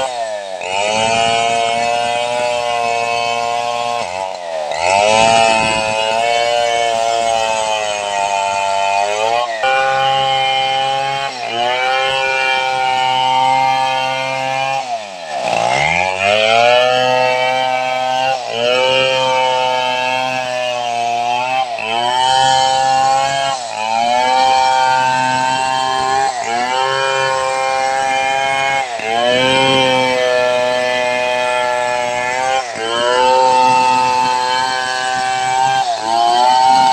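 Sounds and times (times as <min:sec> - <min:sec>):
chainsaw cutting through log: 0:00.0 - 0:36.9.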